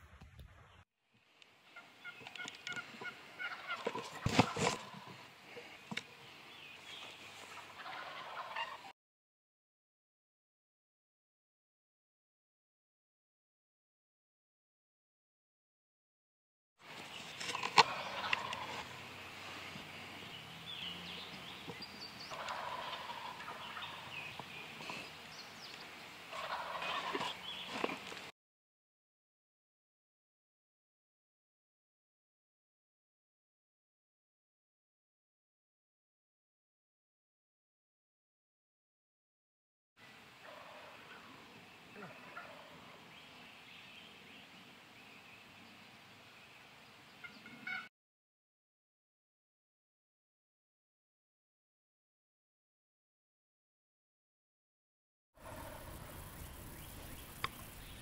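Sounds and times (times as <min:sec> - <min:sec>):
turkey gobbling: 0:01.8 - 0:05.2, 0:07.5 - 0:08.9, 0:17.5 - 0:19.0, 0:21.8 - 0:24.4, 0:26.3 - 0:27.6, 0:40.4 - 0:43.0, 0:47.2 - 0:47.9, 0:55.4 - 0:57.5.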